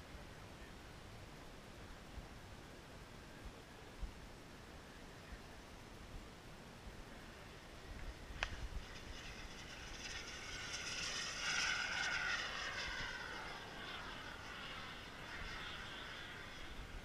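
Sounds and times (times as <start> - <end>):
model jet turbine whine: 7.2 - 17.0.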